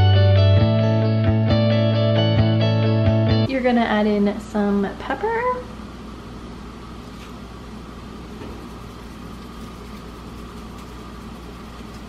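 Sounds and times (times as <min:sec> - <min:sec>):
steady low hum: 0:03.5 - 0:12.0.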